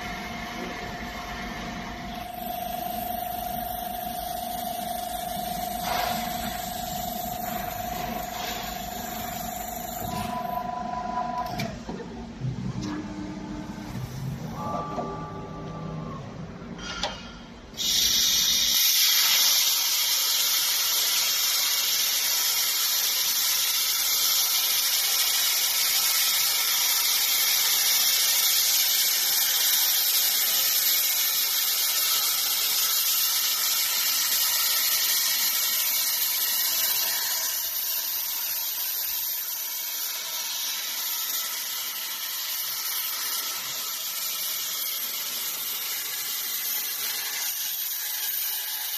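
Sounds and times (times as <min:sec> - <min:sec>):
plasma cutter hissing: 0:02.0 - 0:10.8, 0:17.7 - 0:48.9
spindle motor whirring: 0:02.0 - 0:11.8.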